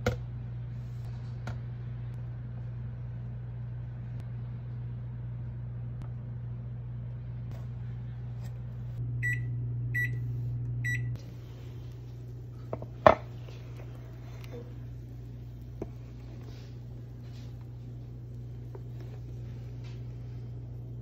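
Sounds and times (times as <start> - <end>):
steady low hum: 0.0 - 21.0
oven control panel beeping: 9.2 - 11.2.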